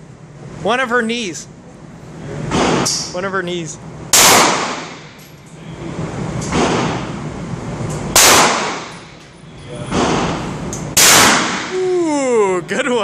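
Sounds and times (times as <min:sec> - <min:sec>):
shotgun shots echoing: 0:04.1 - 0:05.1, 0:08.1 - 0:09.0, 0:09.9 - 0:11.7.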